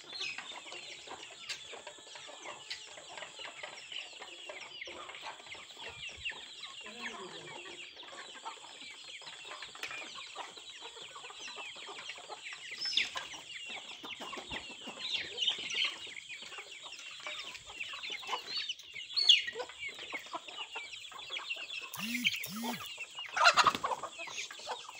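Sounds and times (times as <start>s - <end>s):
chickens clucking: 0.0s - 24.9s
chicks peeping: 0.1s - 24.9s
high-pitched drone: 22.0s - 22.9s.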